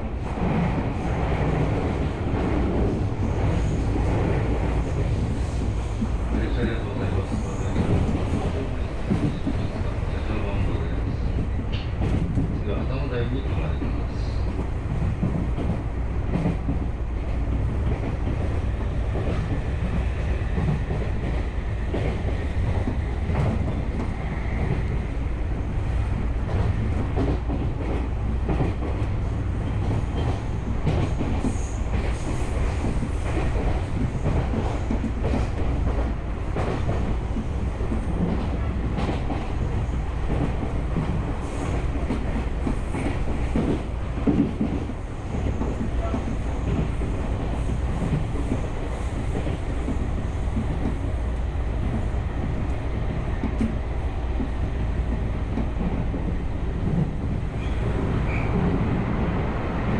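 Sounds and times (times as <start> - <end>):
train wheels rumbling on rail: 0.0 - 59.9
clacks over rail joints: 0.3 - 25.3, 26.1 - 59.4.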